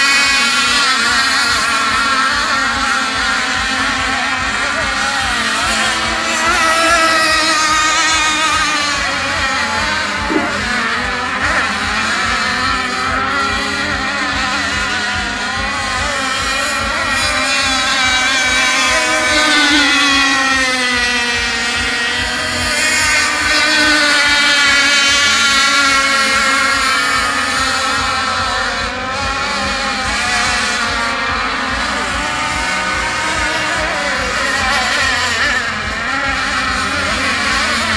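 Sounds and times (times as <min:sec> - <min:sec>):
model boat engines whining: 0:00.0 - 0:37.9.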